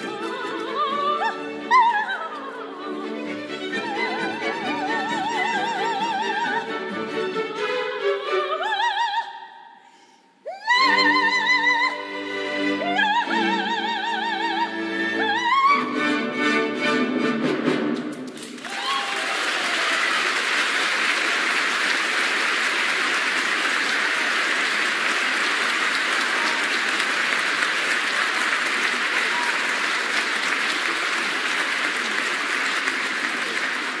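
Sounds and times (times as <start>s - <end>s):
audience applause: 18.3s - 34.0s.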